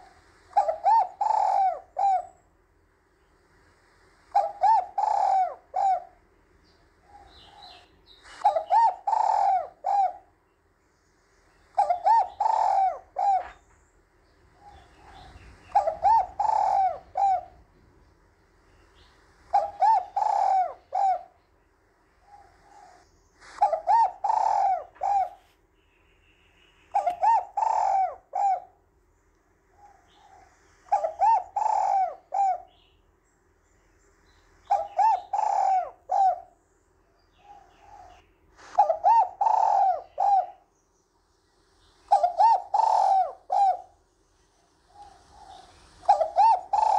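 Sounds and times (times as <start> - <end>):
dove cooing: 0.0 - 2.4, 4.3 - 6.3, 7.0 - 10.4, 11.6 - 13.7, 14.5 - 18.0, 18.8 - 21.4, 22.2 - 25.5, 26.9 - 28.8, 29.7 - 32.8, 34.6 - 36.6, 37.3 - 40.7, 42.1 - 46.9.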